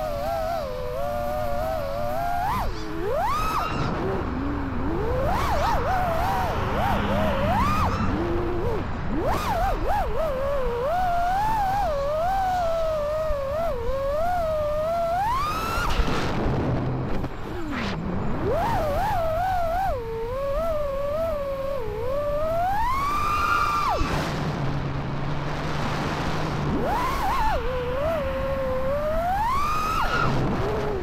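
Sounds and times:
quadcopter motors whining: 0:00.0 - 0:24.9, 0:26.1 - 0:31.0.

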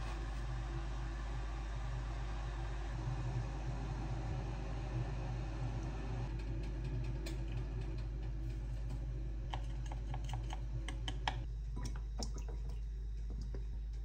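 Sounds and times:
low hum: 0:00.0 - 0:14.0.

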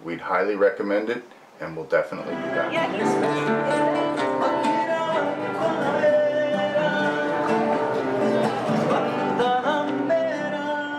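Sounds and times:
acoustic guitar music: 0:02.0 - 0:10.9
person singing: 0:02.3 - 0:10.9.

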